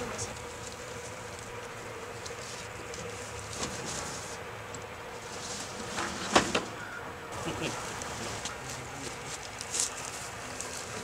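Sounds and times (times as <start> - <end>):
light rustles and ticks: 0.0 - 4.9, 7.9 - 11.0
faint continuous hum: 0.0 - 11.0.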